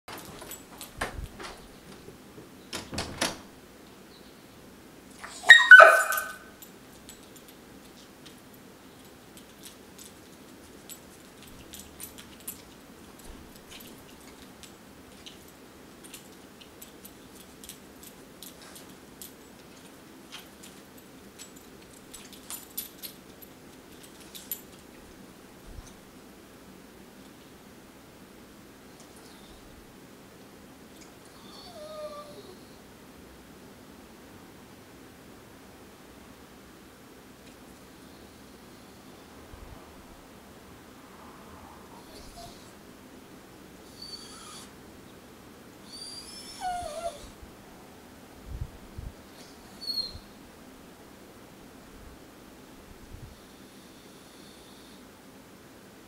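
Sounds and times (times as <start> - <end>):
collar tags jingling: 0.1 - 2.1, 5.1 - 25.2
dog moving in wire crate: 0.1 - 2.2
dog barking: 5.2 - 6.5.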